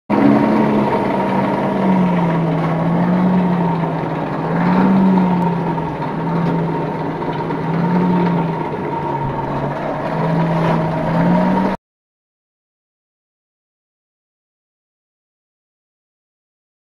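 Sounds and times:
forge fire roaring: 0.1 - 11.8
low wavering hum: 0.1 - 11.8.

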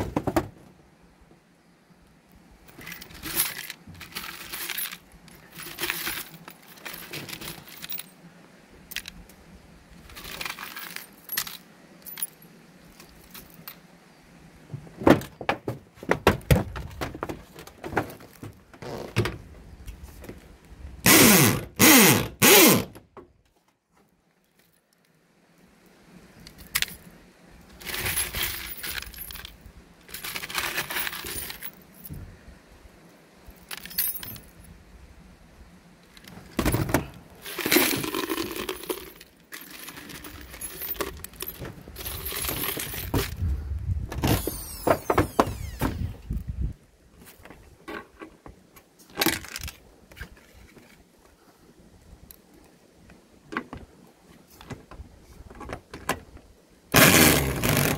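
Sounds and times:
metal screws jangling in a plastic jar: 2.7 - 8.1, 10.1 - 12.4, 27.8 - 32.1, 33.6 - 34.6, 37.4 - 43.4.

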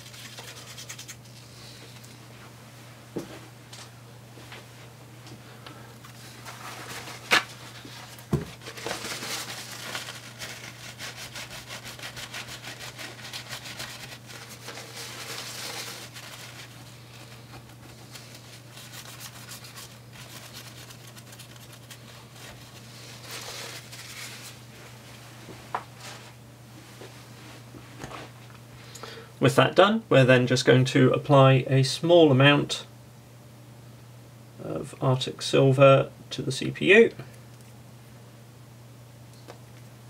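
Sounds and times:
paper towel rubbing on chip: 0.0 - 1.8, 6.1 - 24.6
low steady hum: 0.0 - 40.0.

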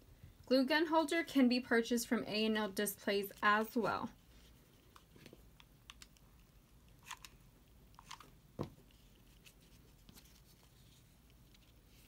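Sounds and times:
faint crinkles: 4.1 - 12.0.

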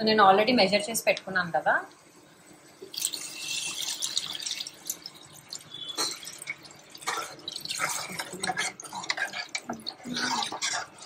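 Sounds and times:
liquid pouring into a pot: 2.8 - 11.0.

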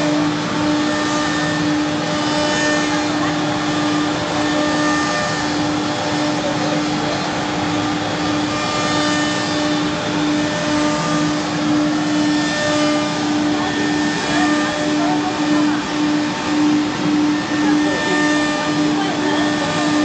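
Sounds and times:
router spindle steady tone: 0.0 - 20.0
rushing machine noise: 0.0 - 20.0.

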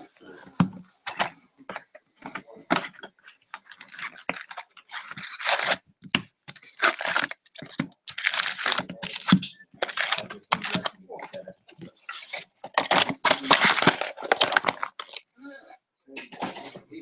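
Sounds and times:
foil packs crinkling: 3.0 - 5.8, 6.5 - 15.3.

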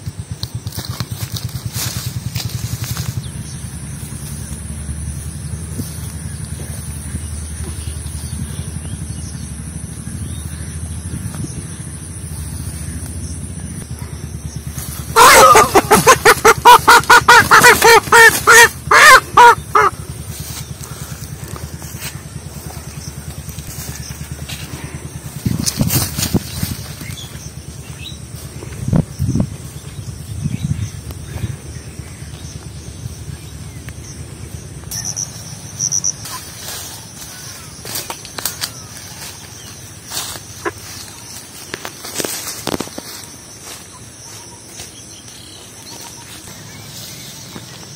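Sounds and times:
insects trilling: 0.0 - 47.9
pulsed insect chirping: 0.0 - 47.9
movement through grass: 0.5 - 9.4, 10.3 - 47.9
rooster squawking: 15.1 - 20.0.

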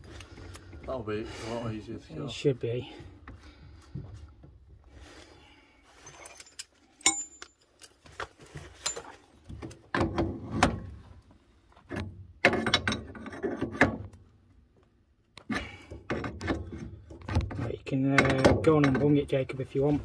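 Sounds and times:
metal valve parts clicking: 6.2 - 7.9.

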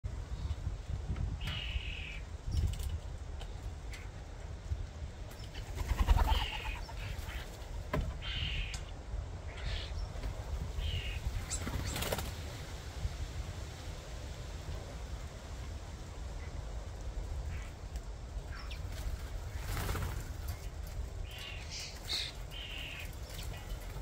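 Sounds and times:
low outdoor rumble: 0.0 - 24.0
short bird calls: 8.2 - 8.9.

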